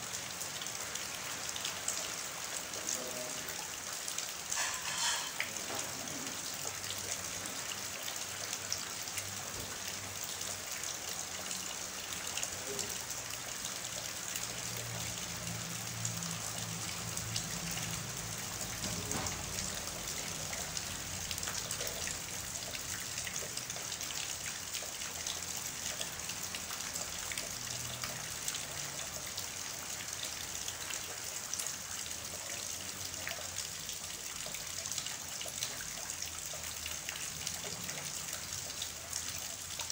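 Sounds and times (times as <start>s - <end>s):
heavy rain on standing water: 0.0s - 39.9s
rain spattering into tub: 0.0s - 39.9s
water running: 2.8s - 7.6s.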